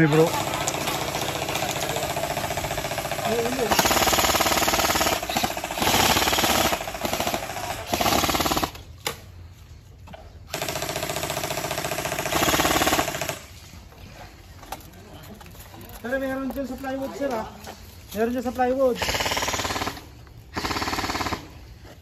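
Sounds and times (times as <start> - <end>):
airsoft gun firing bursts: 0.0 - 8.9, 10.5 - 13.5, 19.0 - 21.6.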